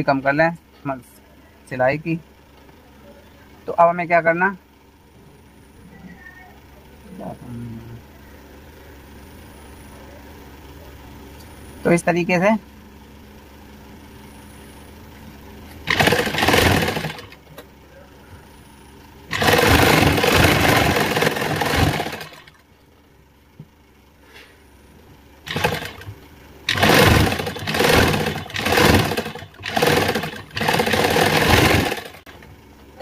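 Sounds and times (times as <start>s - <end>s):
sewing machine stitching: 15.8s - 17.4s, 19.3s - 22.6s, 25.5s - 32.4s.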